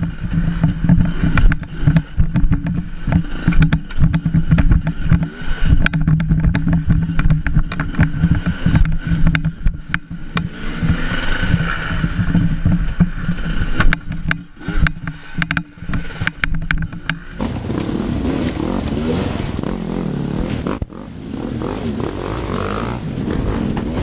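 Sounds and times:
sharp knocks and rattles: 0.0s - 19.1s
dirt bike engine running: 0.0s - 24.0s.

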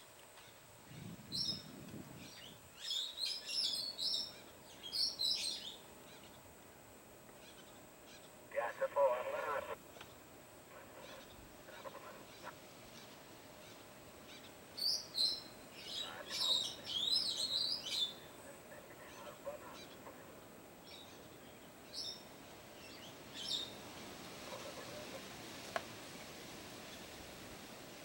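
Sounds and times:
birds chirping and whistling: 14.8s - 18.2s.

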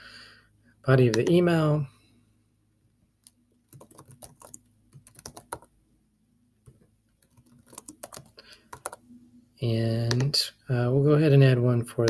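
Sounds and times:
computer keyboard typing: 1.1s - 1.4s, 3.7s - 5.7s, 6.7s - 9.0s, 10.1s - 10.3s.

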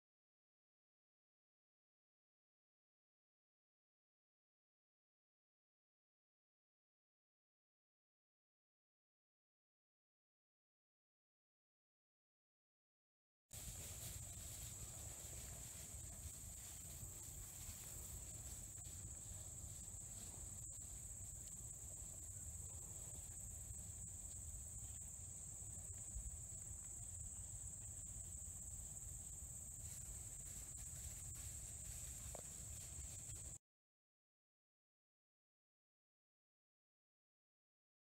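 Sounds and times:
insects chirring: 13.6s - 33.6s.

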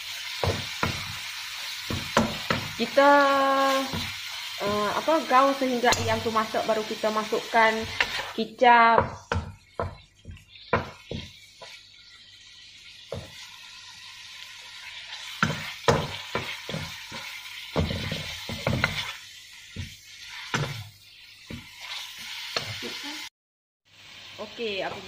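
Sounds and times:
meat sizzling in a wok: 0.0s - 23.3s, 23.9s - 25.0s
spatula scraping: 7.7s - 8.4s, 14.9s - 22.8s
spatula knocking against pan: 8.9s - 11.8s, 15.4s - 17.0s.

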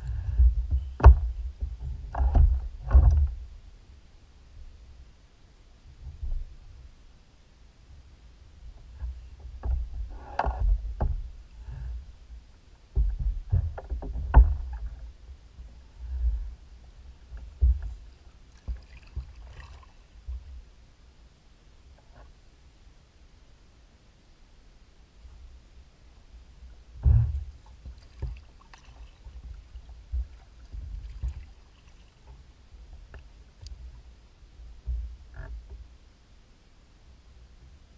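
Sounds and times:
knocks on boat: 0.4s - 3.4s, 12.9s - 15.0s, 17.5s - 18.0s, 27.0s - 28.5s
thumps on plastic kayak hull: 0.5s - 3.4s
water lapping against hull: 12.9s - 20.7s, 26.5s - 34.1s.

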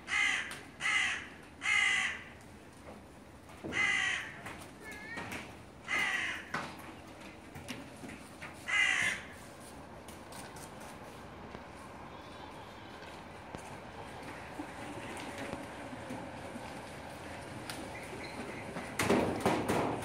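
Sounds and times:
crow cawing: 0.1s - 2.4s, 3.6s - 4.4s, 5.8s - 6.6s, 8.6s - 9.4s.

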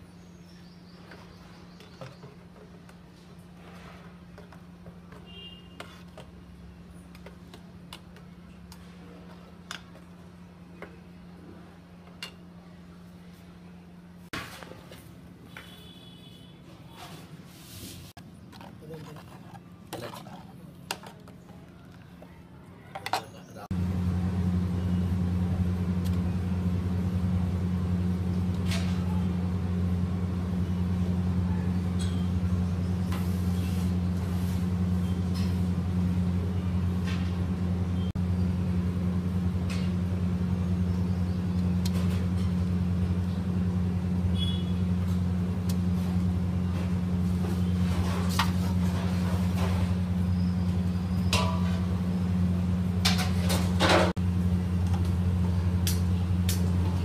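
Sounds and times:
steady low hum: 23.6s - 57.0s.

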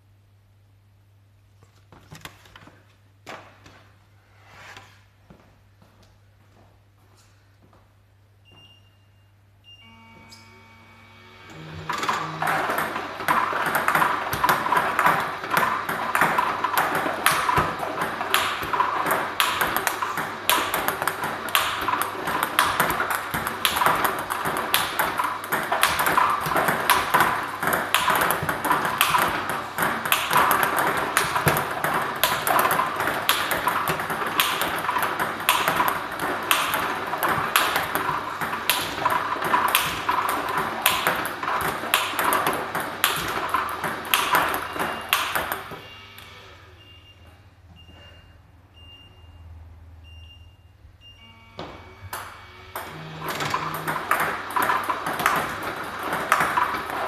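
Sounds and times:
steady machine whir: 10.1s - 46.8s
table tennis balls clicking: 11.5s - 45.9s, 51.6s - 57.0s
ball bouncing on table: 12.1s - 45.8s, 51.6s - 57.0s
racket striking ball: 12.1s - 45.9s, 51.6s - 57.0s.

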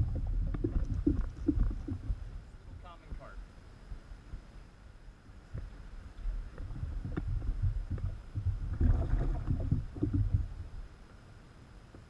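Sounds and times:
low thumps on a kayak: 0.0s - 2.4s, 6.5s - 10.8s
water splashing: 0.0s - 2.4s, 6.4s - 10.8s.

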